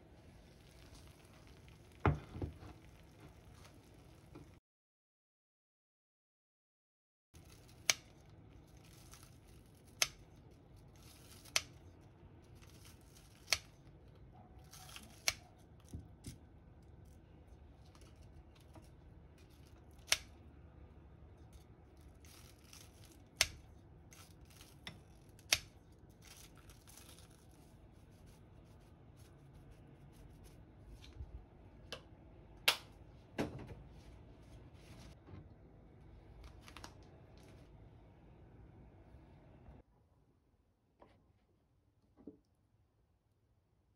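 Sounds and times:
crust crunching: 21.5s - 28.4s.

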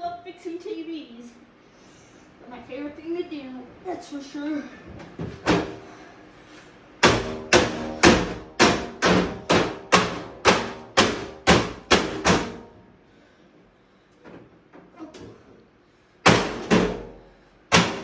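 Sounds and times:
hammer blows ringing: 7.0s - 12.8s, 16.2s - 18.0s.

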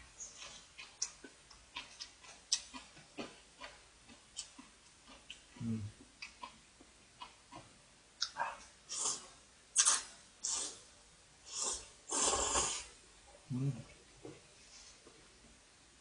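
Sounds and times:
soft chewing: 0.0s - 10.7s
person slurping noodles: 8.9s - 10.8s, 11.5s - 12.9s.

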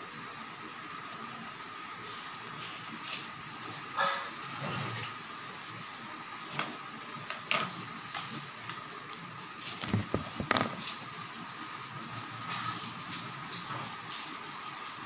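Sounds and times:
phone rubbing bumps: 9.8s - 10.8s.

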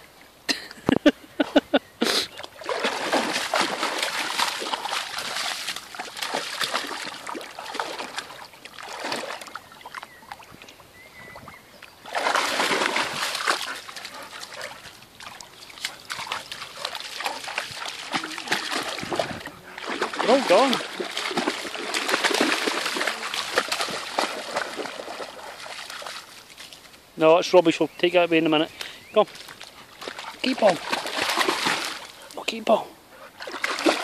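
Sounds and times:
dog splashing through water: 2.4s - 10.6s, 12.0s - 26.9s, 29.3s - 32.4s, 33.2s - 34.0s.

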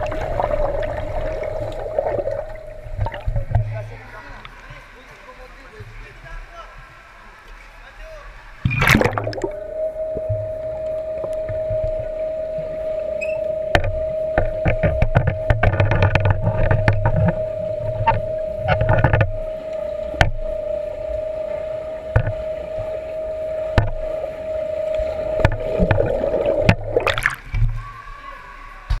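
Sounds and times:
water splash: 0.0s - 3.8s, 8.6s - 10.5s, 25.0s - 27.8s
underwater hum: 0.0s - 5.4s, 8.3s - 29.0s
swimmers clicking and knocking underwater: 0.0s - 6.2s, 8.6s - 28.1s.

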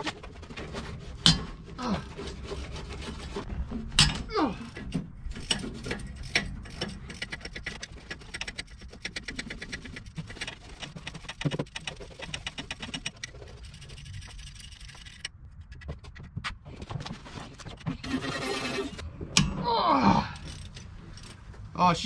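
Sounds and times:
hand ratchet clicking: 5.3s - 15.3s.

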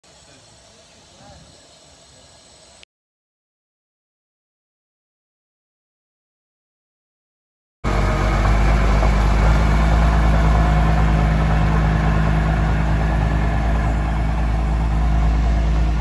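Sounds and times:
diesel locomotive engine humming: 7.9s - 16.0s.

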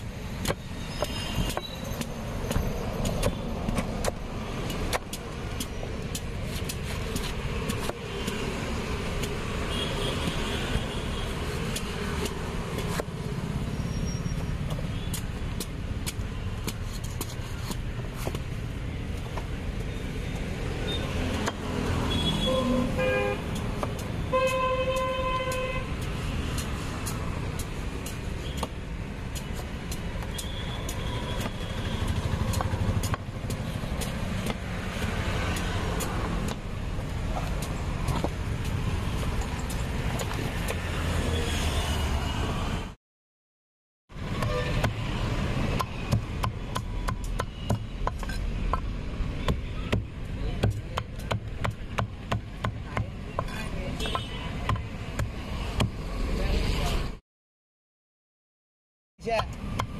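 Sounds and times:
road traffic rumble: 0.0s - 43.0s, 44.1s - 57.2s, 59.2s - 59.9s
vehicle horns honking: 22.1s - 23.5s, 24.3s - 25.9s, 44.4s - 44.9s.

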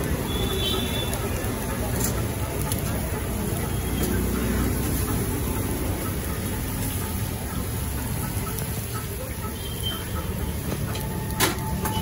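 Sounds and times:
rumble of passing traffic: 0.0s - 12.0s.

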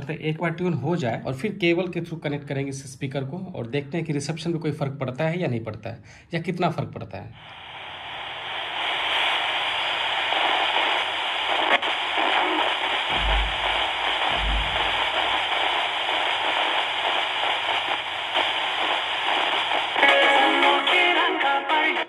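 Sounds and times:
radio static hiss: 7.3s - 22.0s
music on radio: 7.4s - 22.0s
low thumps: 13.0s - 16.7s.

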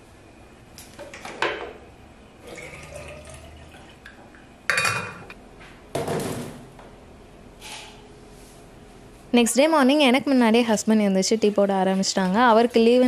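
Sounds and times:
water poured into a bottle: 2.4s - 4.0s.

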